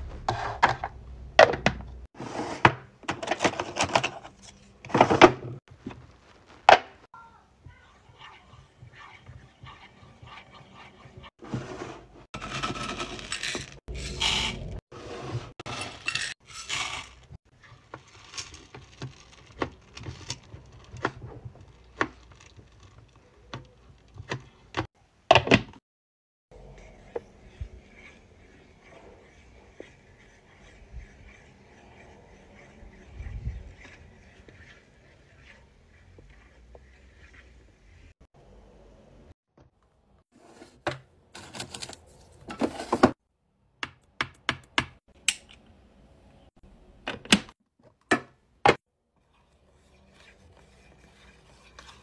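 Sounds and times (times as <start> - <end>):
wooden stick scraping wax beads: 26.7 - 38.2, 49.2 - 52.0.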